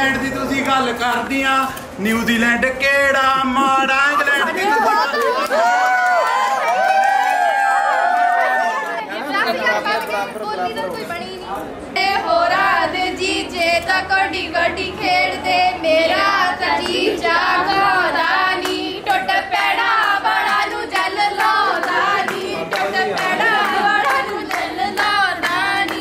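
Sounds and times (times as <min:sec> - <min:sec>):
women singing together: 0:11.9 - 0:26.0
hand claps: 0:20.0 - 0:26.0.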